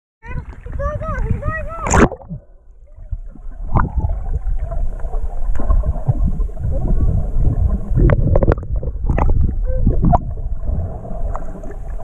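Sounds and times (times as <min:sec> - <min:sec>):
muffled underwater rumble: 0:00.2 - 0:12.0
underwater clicks and knocks: 0:08.0 - 0:10.3.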